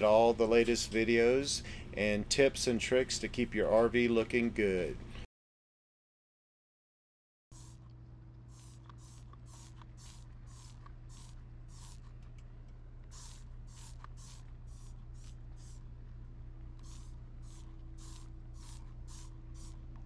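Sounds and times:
spray bottle hissing: 0:07.5 - 0:07.8, 0:08.5 - 0:12.1, 0:13.1 - 0:15.8, 0:16.8 - 0:19.8.

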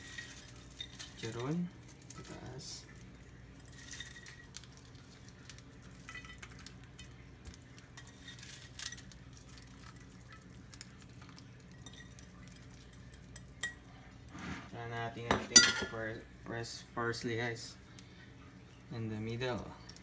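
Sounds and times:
low steady hum: 0:00.0 - 0:20.0
pork cracklings clinking on a plate: 0:03.6 - 0:13.8.

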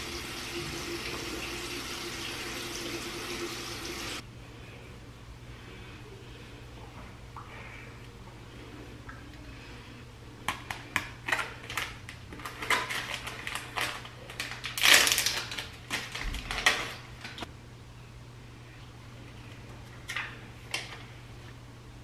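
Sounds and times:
low steady hum: 0:00.0 - 0:22.0
paper packet crinkling: 0:11.2 - 0:17.4.

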